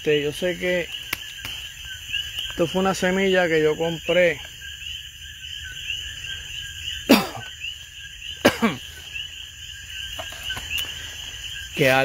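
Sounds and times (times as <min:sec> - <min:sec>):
frogs and insects chirping: 0:00.0 - 0:12.0
person coughing: 0:07.1 - 0:07.5, 0:08.4 - 0:08.9.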